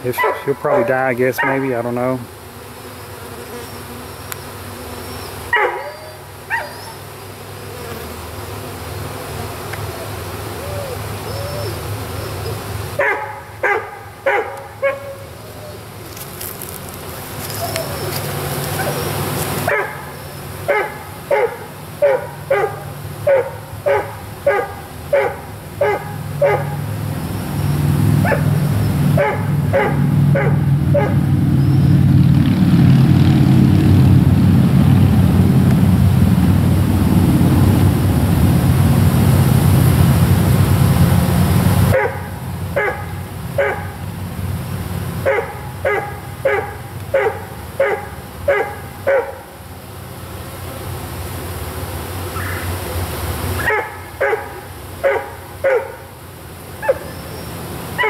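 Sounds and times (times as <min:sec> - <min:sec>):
dog barking: 0:00.2 - 0:01.7, 0:05.5 - 0:07.0, 0:13.0 - 0:15.3, 0:19.7 - 0:20.1, 0:20.7 - 0:26.8, 0:28.2 - 0:28.5, 0:29.2 - 0:31.2, 0:41.9 - 0:44.0, 0:45.2 - 0:49.4, 0:53.6 - 0:56.0, 0:56.8 - 0:57.1.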